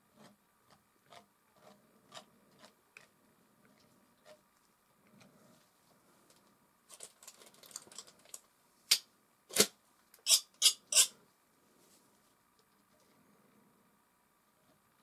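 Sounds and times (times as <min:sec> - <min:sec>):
palette knife scraping paint: 0:00.2 - 0:03.2
sharp blade scrapes: 0:10.3 - 0:11.2.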